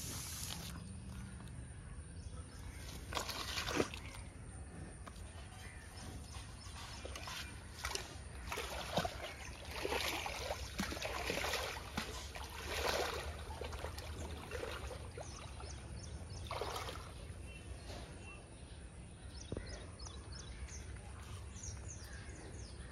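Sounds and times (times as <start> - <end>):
water splashing and sloshing: 0.0 - 1.8, 2.6 - 18.3
small birds chirping: 0.0 - 22.9.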